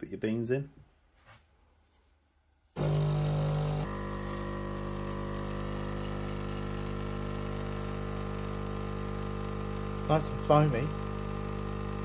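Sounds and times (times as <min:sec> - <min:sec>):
coffee machine pump humming: 0:02.8 - 0:12.0.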